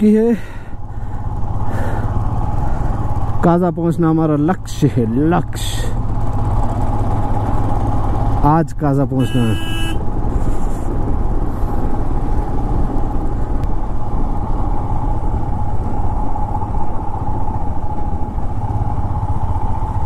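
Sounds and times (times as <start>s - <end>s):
motorcycle engine humming: 0.0s - 20.0s
steady rushing noise: 9.9s - 20.0s.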